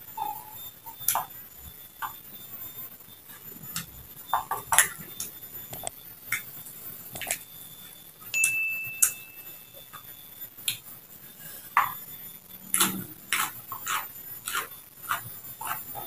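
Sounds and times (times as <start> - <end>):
steady high beep: 6.8 - 10.5
crunchy eating sounds: 9.8 - 16.0.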